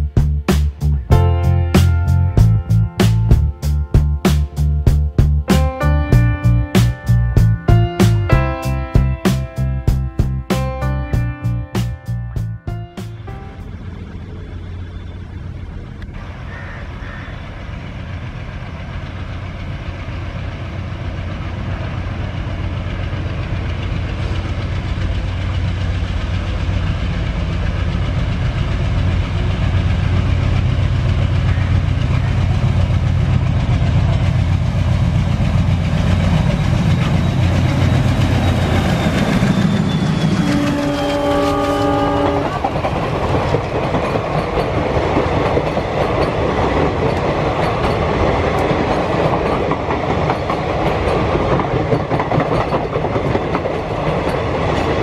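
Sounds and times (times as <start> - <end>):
diesel locomotive engine: 0.0 - 55.0
train wheels clattering: 17.7 - 55.0
locomotive horn blast: 37.7 - 42.9.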